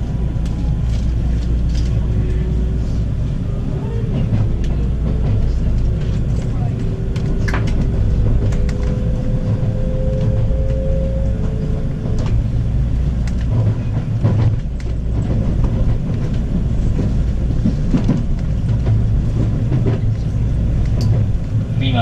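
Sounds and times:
train wheels rumbling on rails: 0:00.0 - 0:22.0
clicks of train wheels: 0:04.2 - 0:12.4, 0:13.1 - 0:21.4.

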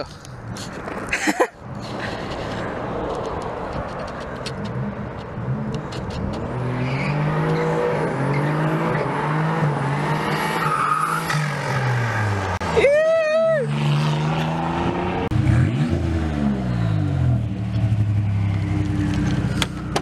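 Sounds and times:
car engine revving: 0:01.8 - 0:12.7, 0:13.5 - 0:20.0.

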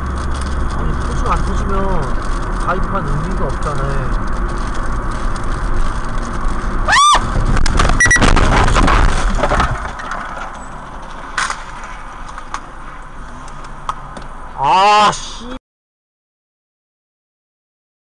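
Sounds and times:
road noise inside car: 0:00.0 - 0:15.6.

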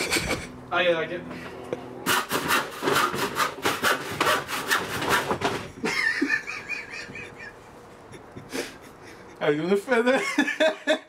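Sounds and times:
handsaw cutting wood: 0:02.0 - 0:05.6.

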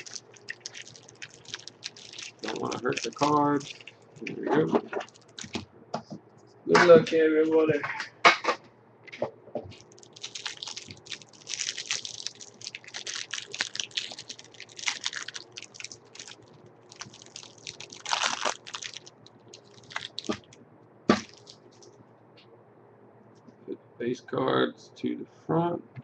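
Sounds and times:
plastic wrapper crinkling: 0:00.0 - 0:05.6, 0:09.7 - 0:22.0.

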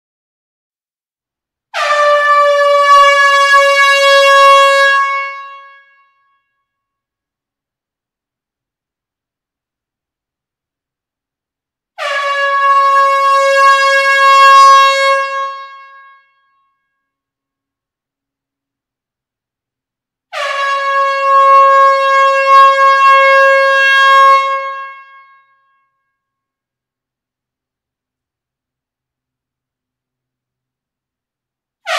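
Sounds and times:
air horn blast: 0:01.7 - 0:06.2, 0:12.0 - 0:16.4, 0:20.3 - 0:25.6.

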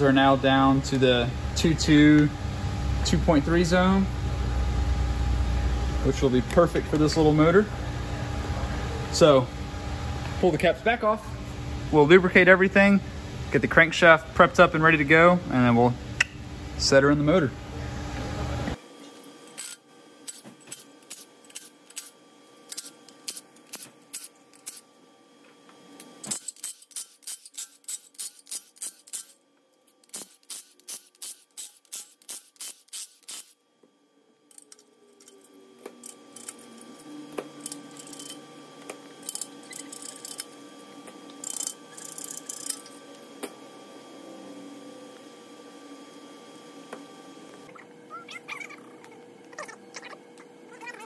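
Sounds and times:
ratchet clicking: 0:26.3 - 0:29.4, 0:30.0 - 0:33.6, 0:41.4 - 0:42.8.

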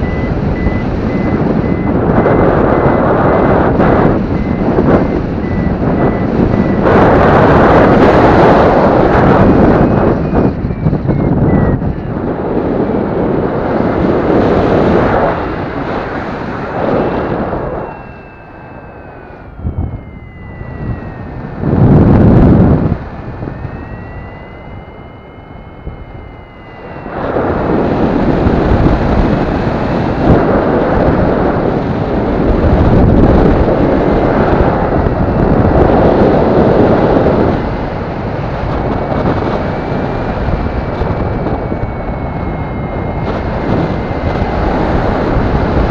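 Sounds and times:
thin tone wavering in pitch: 0:00.0 - 0:13.4, 0:15.0 - 0:30.2, 0:39.3 - 0:45.5
wind rushing over microphone: 0:00.0 - 0:45.9.

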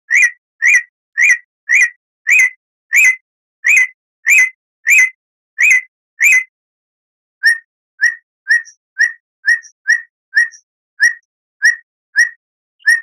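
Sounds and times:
songbird call note: 0:00.1 - 0:06.5, 0:07.4 - 0:13.0.

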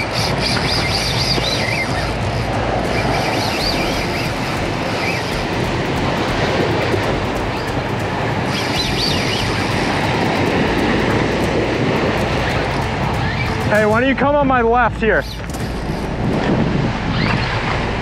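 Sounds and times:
seabird calls: 0:00.0 - 0:14.0
surf breaking over rocks: 0:00.0 - 0:18.0.

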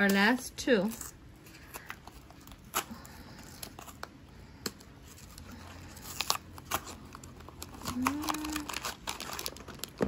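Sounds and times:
cardboard and foil rustling: 0:05.0 - 0:10.0.

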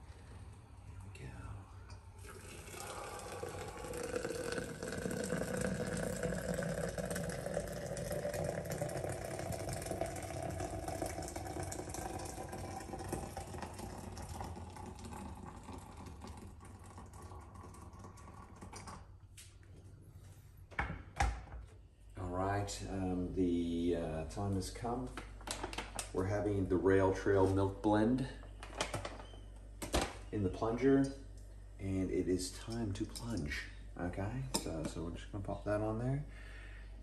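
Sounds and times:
hot water pouring into glass: 0:02.0 - 0:19.1.

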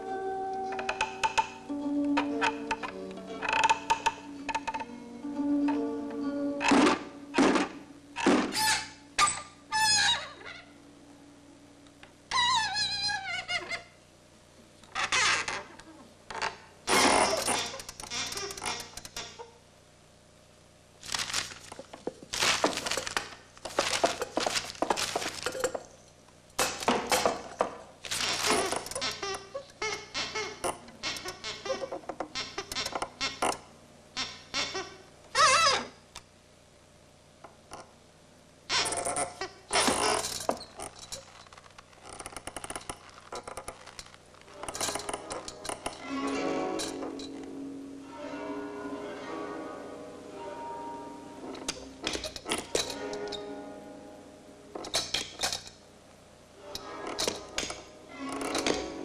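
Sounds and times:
clattering and clinking: 0:21.2 - 0:26.0, 0:39.8 - 0:47.4, 0:51.5 - 0:53.5, 0:54.8 - 0:55.8, 0:56.7 - 0:59.0.

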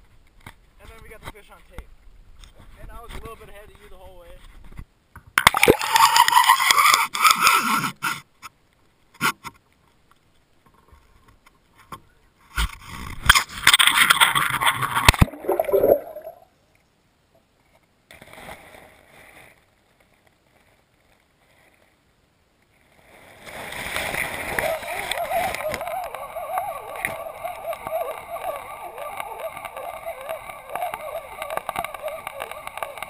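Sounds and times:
water splashing against camera: 0:05.4 - 0:07.5, 0:12.6 - 0:16.5, 0:23.5 - 0:33.0
faint water sloshing: 0:13.8 - 0:16.5.

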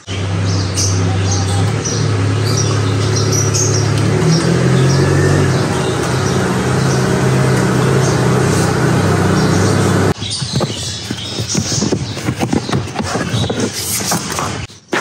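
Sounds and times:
car engine at low revs: 0:00.0 - 0:10.2
birds chirping: 0:00.0 - 0:14.7.

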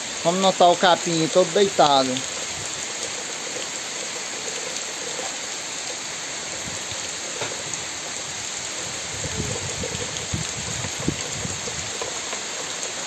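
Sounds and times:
heavy rain falling: 0:00.0 - 0:13.0
low thumps and rumbles: 0:09.1 - 0:12.0.

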